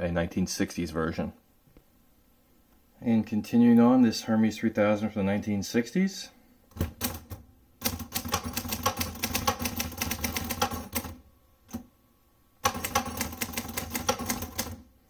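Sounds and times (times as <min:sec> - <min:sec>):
manual typewriter keystroke clacks: 0:06.7 - 0:11.8, 0:12.6 - 0:14.8.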